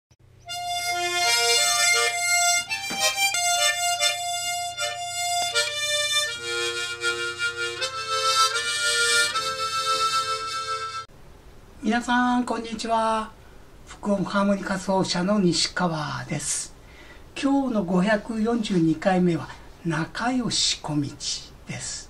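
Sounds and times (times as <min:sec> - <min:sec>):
tremolo harmonica melody: 0:00.3 - 0:11.1.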